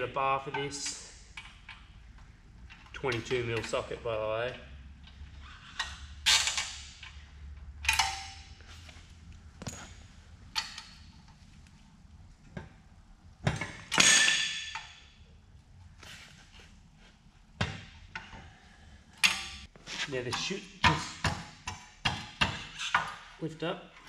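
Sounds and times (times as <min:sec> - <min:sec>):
metal tools clanking on bolts: 0:07.8 - 0:08.5.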